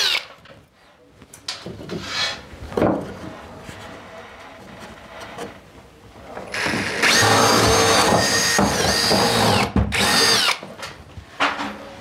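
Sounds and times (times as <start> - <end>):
power drill boring through wood: 6.5 - 10.6.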